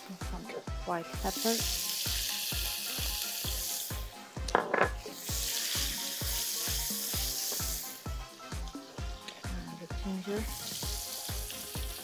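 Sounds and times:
background music beat: 0.0s - 12.0s
meat sizzling in a frying pan: 0.0s - 12.0s.

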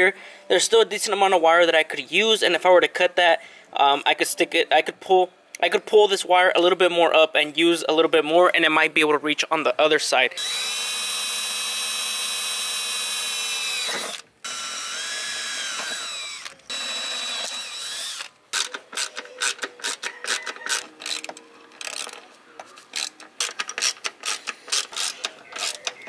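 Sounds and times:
cordless drill motor whine: 10.4s - 18.3s.

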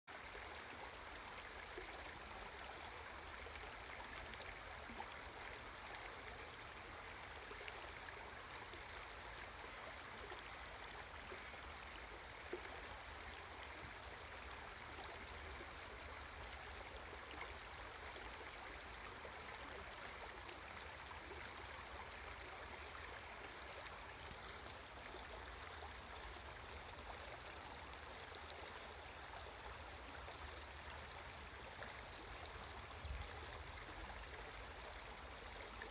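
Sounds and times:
stream flowing over stones: 0.1s - 35.9s.

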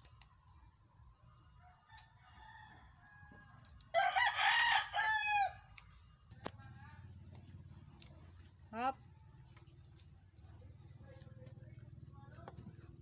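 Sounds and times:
rooster crowing: 1.6s - 5.7s.

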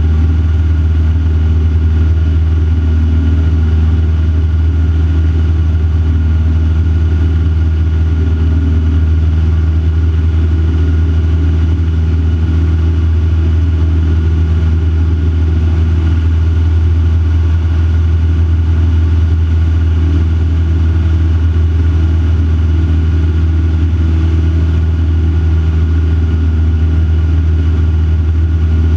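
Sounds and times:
aircraft engine and propeller drone: 0.0s - 28.9s.

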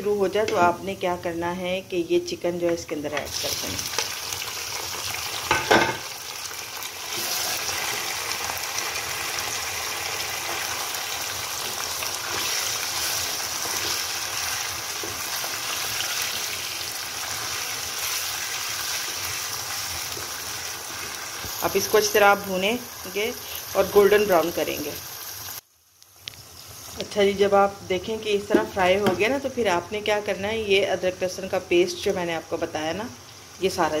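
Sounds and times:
chicken sizzling in hot oil: 3.2s - 28.3s
spatula stirring in wok: 11.5s - 21.7s.

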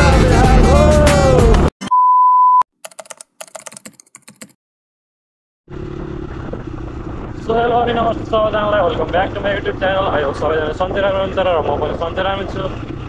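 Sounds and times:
test-card beep: 1.8s - 2.6s.

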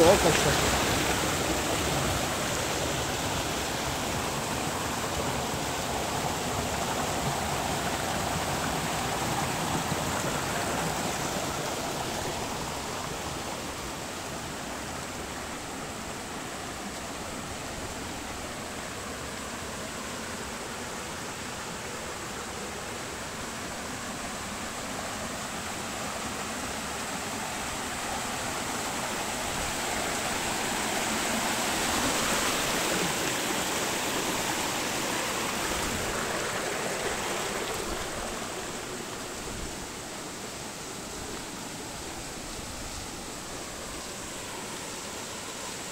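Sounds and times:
stream rushing over rocks: 0.0s - 45.9s.

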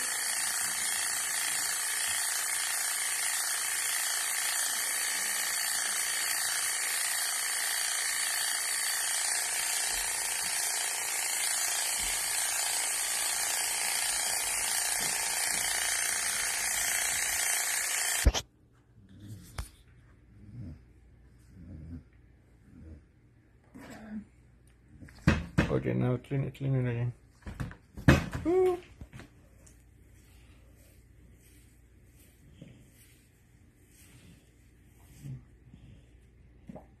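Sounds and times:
electric clippers buzzing: 0.0s - 18.4s.

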